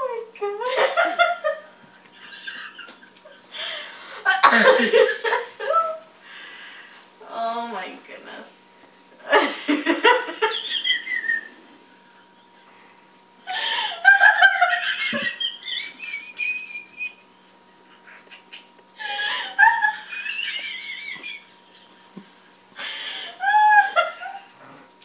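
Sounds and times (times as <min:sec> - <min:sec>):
woman laughing: 0:00.6 - 0:06.1, 0:09.2 - 0:11.5, 0:13.5 - 0:17.3, 0:17.9 - 0:22.2, 0:22.8 - 0:24.6.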